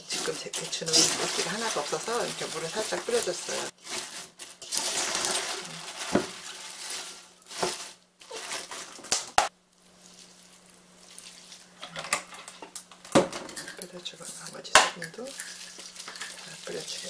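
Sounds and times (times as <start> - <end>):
cabbage leaves rustling and crunching: 0.0 - 11.8, 15.2 - 17.0.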